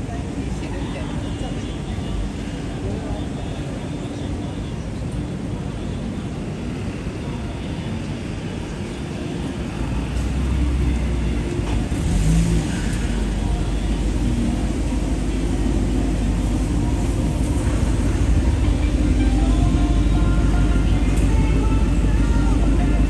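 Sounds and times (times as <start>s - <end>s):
deep engine rumble: 0.0s - 23.0s
vehicles running past: 6.3s - 23.0s.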